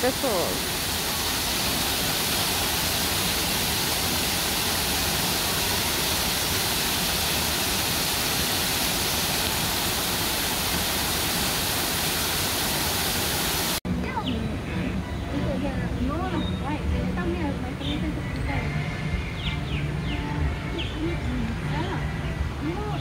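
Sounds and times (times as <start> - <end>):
waterfall crashing onto rocks: 0.0 - 13.8.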